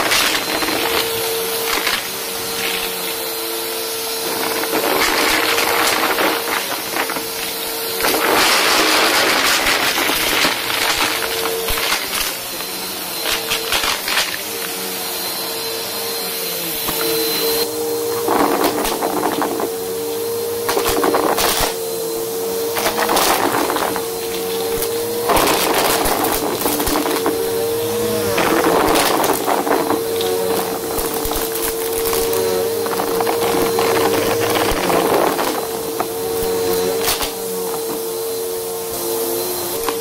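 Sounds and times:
debris crunching and rattling: 0:00.0 - 0:03.0, 0:04.3 - 0:12.4, 0:22.8 - 0:27.4, 0:28.3 - 0:36.2
vacuum cleaner motor whine: 0:00.0 - 0:40.0.

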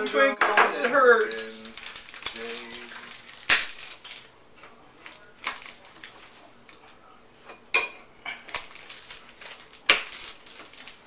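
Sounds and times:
chocolate bar snapping: 0:01.2 - 0:04.3, 0:05.0 - 0:06.8, 0:08.3 - 0:11.0.

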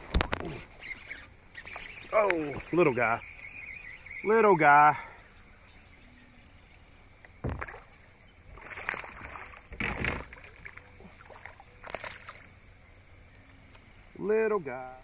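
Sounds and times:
dull thump: 0:07.4 - 0:07.8.

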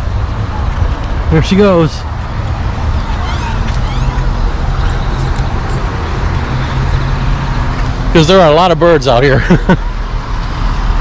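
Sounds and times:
traffic rumble: 0:00.0 - 0:11.0
blackbirds calling: 0:02.8 - 0:07.4.

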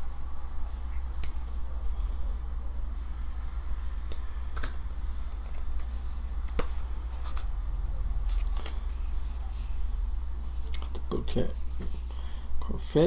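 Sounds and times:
low hum: 0:00.0 - 0:12.7
book pages rustling: 0:04.6 - 0:07.5, 0:08.2 - 0:12.1.

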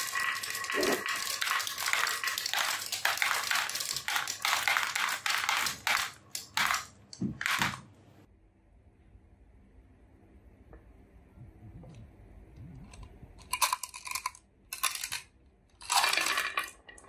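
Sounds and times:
marbles clattering down wooden ramp: 0:00.0 - 0:06.9, 0:15.8 - 0:17.0
marbles dropping into plastic truck: 0:00.0 - 0:07.8, 0:13.4 - 0:17.0.

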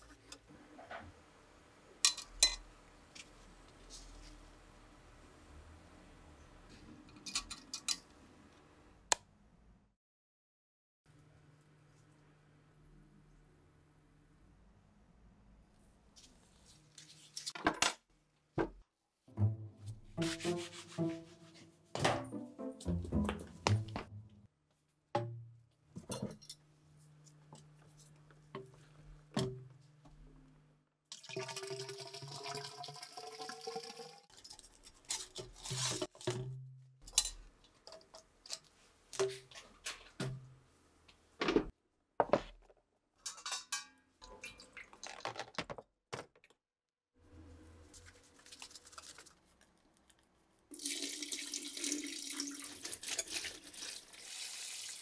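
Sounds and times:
container filling with water: 0:31.1 - 0:34.4, 0:50.7 - 0:55.0.

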